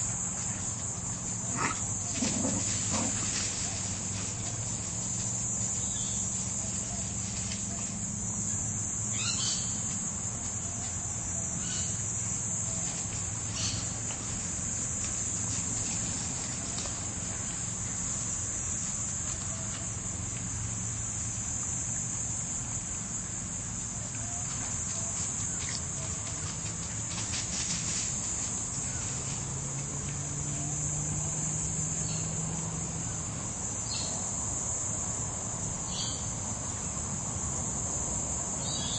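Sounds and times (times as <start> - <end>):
high-pitched insect chorus: 0.0 - 38.9
dogs digging in dry leaves: 1.2 - 8.1.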